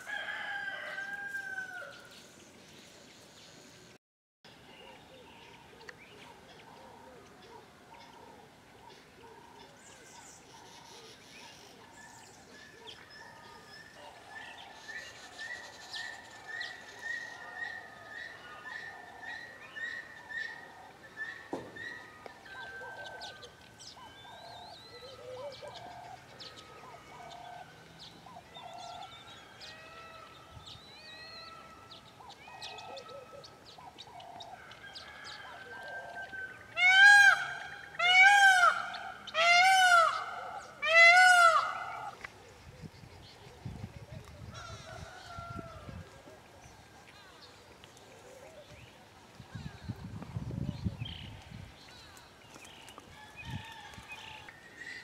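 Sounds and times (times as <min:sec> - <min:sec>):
peacock calling loudly: 0:35.4 - 0:42.3.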